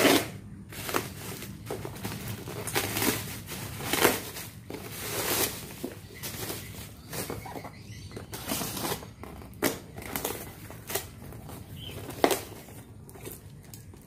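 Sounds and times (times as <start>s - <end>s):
bubble wrap crinkling: 0.0s - 7.7s, 8.3s - 14.0s.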